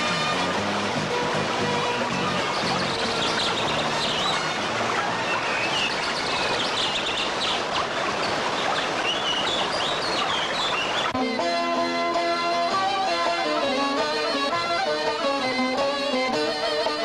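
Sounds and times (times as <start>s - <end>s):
rushing mountain stream: 0.0s - 17.0s
small birds chirping: 2.0s - 11.2s.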